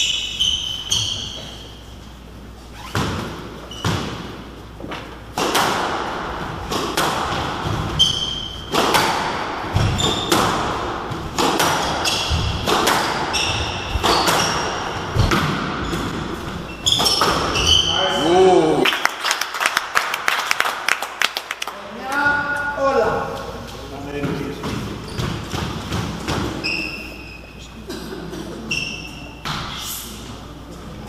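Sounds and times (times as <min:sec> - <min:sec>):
shoes squeaking on wooden floor: 0:00.0 - 0:01.8, 0:02.6 - 0:05.2, 0:07.6 - 0:08.8, 0:09.7 - 0:18.4, 0:23.6 - 0:27.8, 0:28.6 - 0:29.5
squash ball smacking: 0:02.9 - 0:17.6, 0:24.7 - 0:26.6.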